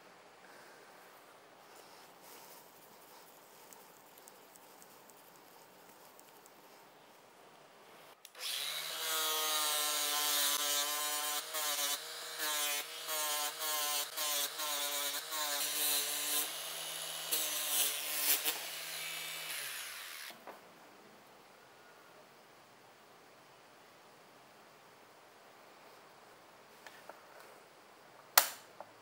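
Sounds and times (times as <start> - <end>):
scratchy hiss of grinding steel: 8.3 - 20.4.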